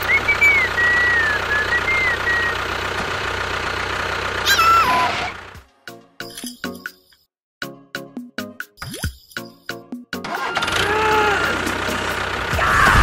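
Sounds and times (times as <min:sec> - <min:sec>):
wavering whistle-like tone: 0:00.0 - 0:02.6
tractor engine idling: 0:00.0 - 0:05.8, 0:10.2 - 0:13.0.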